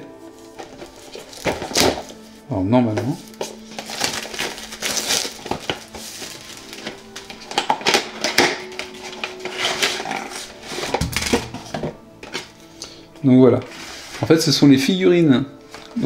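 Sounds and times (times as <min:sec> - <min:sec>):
soft background music: 0:00.0 - 0:16.0
cardboard and plastic crinkling: 0:00.1 - 0:12.8.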